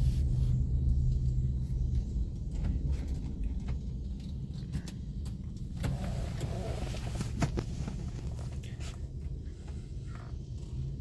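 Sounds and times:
car cabin rumble: 0.0 - 11.0.

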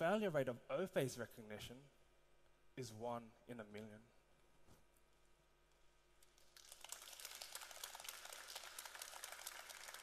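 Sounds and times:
audience applauding: 6.4 - 10.0.

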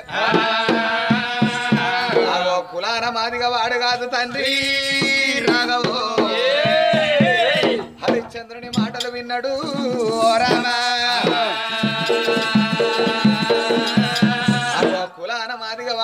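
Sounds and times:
person singing ornamented lines: 0.0 - 15.5
hand-struck barrel drum: 0.2 - 2.5, 4.9 - 15.1.

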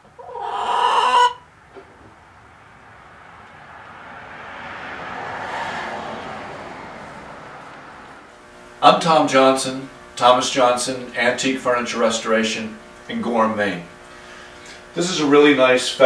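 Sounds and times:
hen calling: 0.0 - 1.5
soft rushing noise: 1.8 - 8.4.

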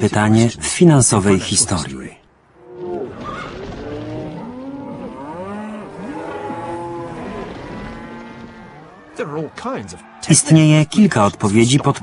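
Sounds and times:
cattle mooing: 2.6 - 9.2.

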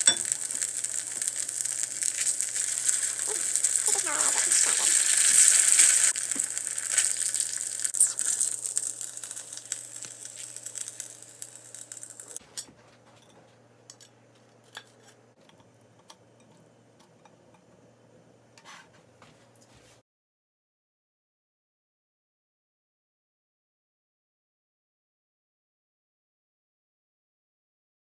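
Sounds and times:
dumplings sizzling in oil: 0.0 - 12.4.

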